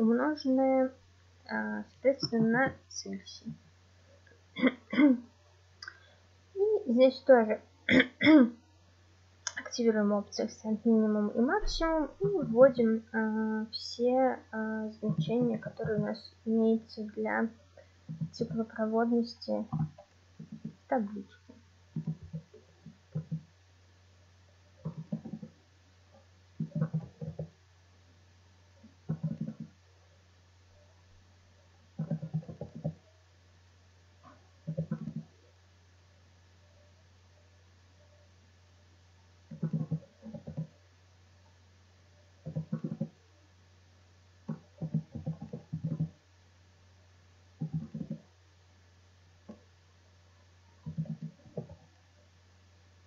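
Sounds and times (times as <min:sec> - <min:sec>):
low electrical hum: 0:00.0 - 0:53.0.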